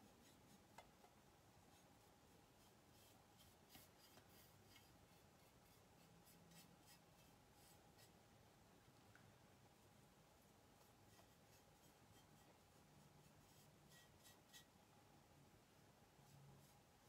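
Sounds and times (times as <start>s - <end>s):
paintbrush scratching: 0.0s - 8.2s, 10.7s - 14.8s, 16.2s - 17.0s.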